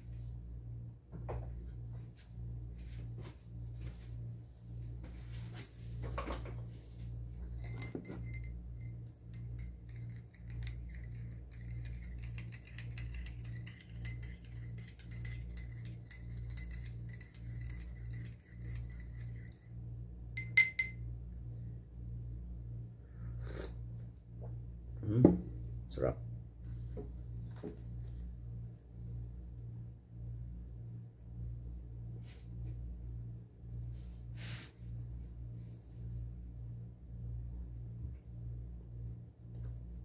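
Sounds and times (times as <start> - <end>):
air conditioner hum: 0.0 - 40.0
spoon clinking in ceramic mug: 7.5 - 19.6, 20.4 - 21.0.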